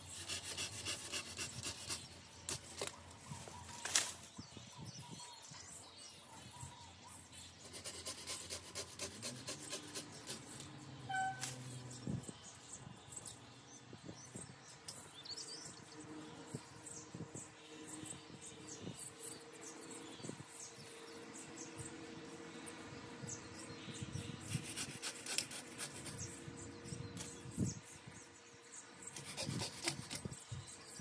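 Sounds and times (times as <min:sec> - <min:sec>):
twigs crackling being pruned: 0:00.3 - 0:04.3, 0:24.5 - 0:26.3, 0:29.2 - 0:30.3.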